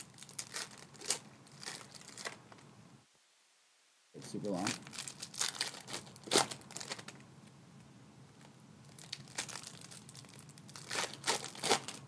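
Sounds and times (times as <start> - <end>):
plastic wrappers crinkling and tearing: 0.0 - 2.6, 4.6 - 7.2, 8.4 - 12.0.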